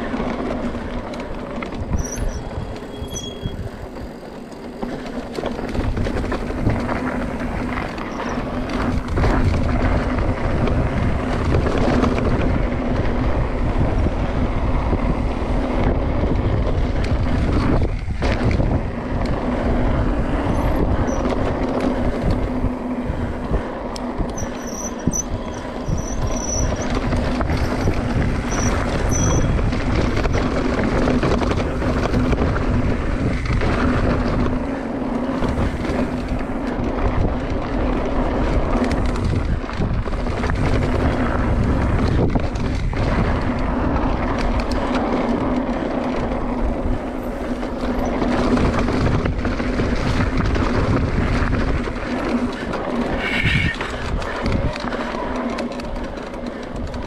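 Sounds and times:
bike tyres on gravel: 0.0s - 57.0s
wind on microphone: 5.3s - 57.0s.

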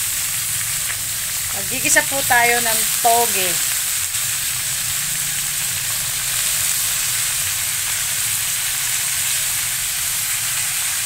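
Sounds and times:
bean sprouts sizzling in a wok: 0.0s - 11.0s.

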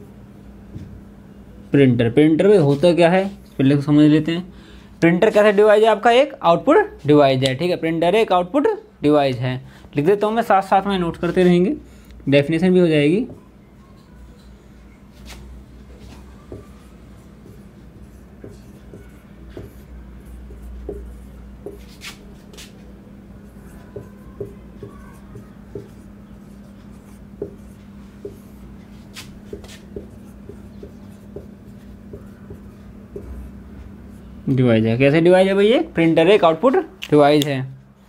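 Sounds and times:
steady low hum: 6.2s - 37.0s
marker pen writing on whiteboard: 14.3s - 34.2s.

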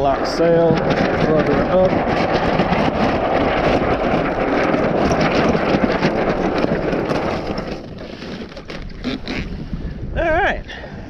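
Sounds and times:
wind buffeting microphone: 0.0s - 11.0s.

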